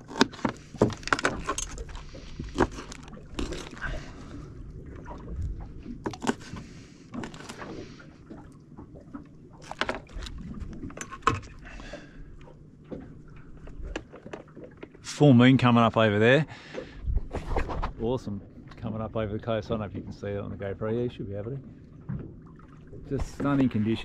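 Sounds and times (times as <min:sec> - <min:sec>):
fishing gear knocking and clicking: 0:00.0 - 0:03.8
water and boat noise: 0:00.0 - 0:24.0.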